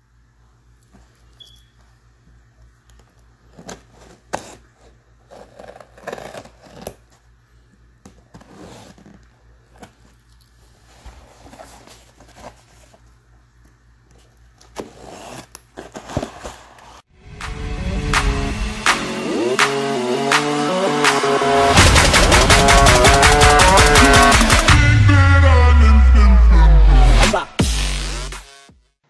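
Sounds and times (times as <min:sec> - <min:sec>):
sharp knock: 0:21.7 - 0:24.9.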